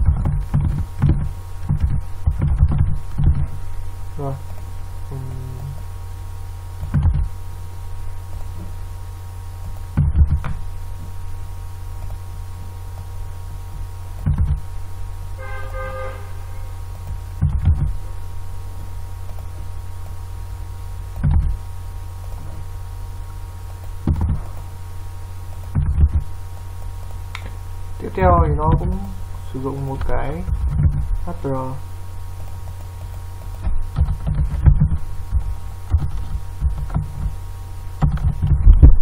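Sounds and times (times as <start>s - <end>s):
low electrical hum: 0.0s - 39.0s
brief buzzy tone: 15.4s - 16.8s.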